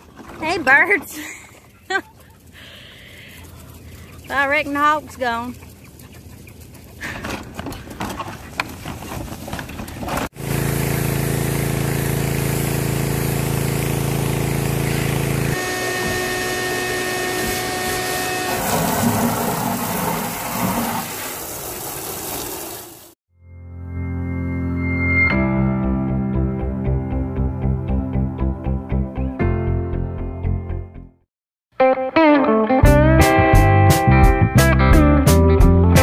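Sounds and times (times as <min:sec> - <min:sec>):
pressure washer engine running: 0:10.4 - 0:22.8
water spray hitting metal: 0:17.4 - 0:23.2.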